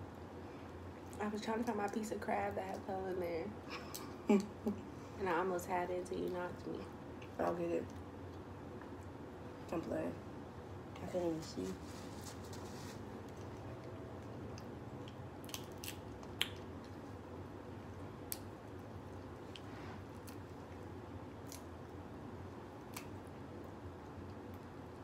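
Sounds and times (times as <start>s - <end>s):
faint room noise: 0.0s - 25.0s
crab shell cracking: 14.3s - 17.0s, 22.8s - 23.2s.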